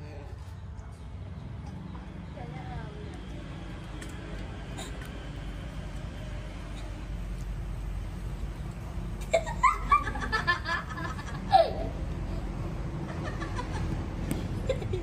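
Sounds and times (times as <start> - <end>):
person laughing heartily: 9.2 - 12.0, 14.6 - 15.0.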